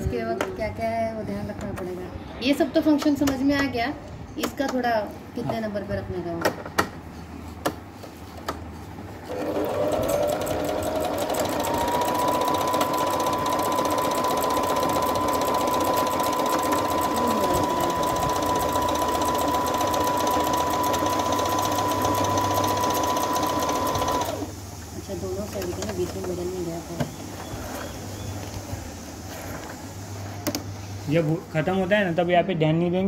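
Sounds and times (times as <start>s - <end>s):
sewing machine motor whine: 9.3s - 24.5s.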